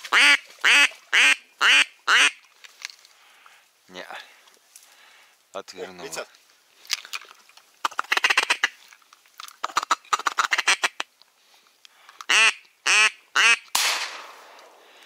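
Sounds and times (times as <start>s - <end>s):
duck quacking: 0.1s - 2.4s, 12.3s - 13.6s
shotgun shot: 13.7s - 14.8s.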